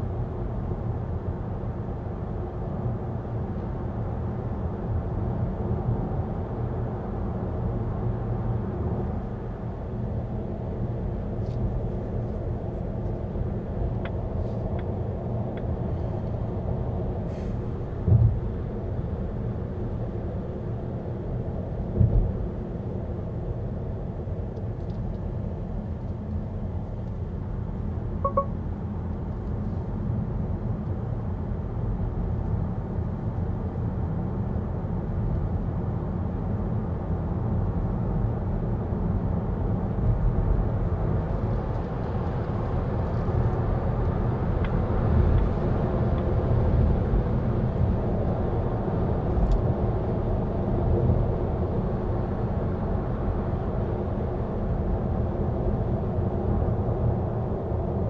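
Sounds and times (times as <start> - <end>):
road and tyre rumble: 0.0 - 58.0
short beep: 28.2 - 28.5.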